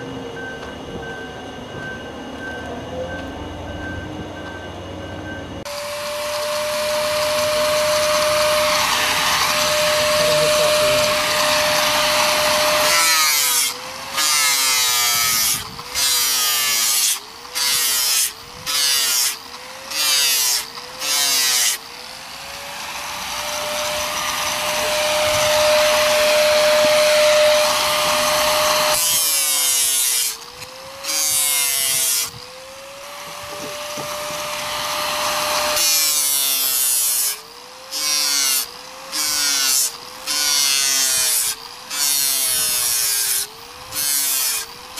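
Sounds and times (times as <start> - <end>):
angle grinder motor whine: 0.0 - 44.9
disc grinding fiberglass: 6.0 - 22.1, 22.7 - 32.5.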